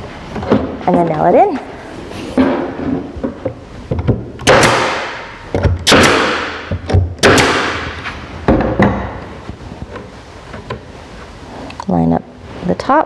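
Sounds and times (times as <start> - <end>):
air stapler shots: 4.4 - 8.1.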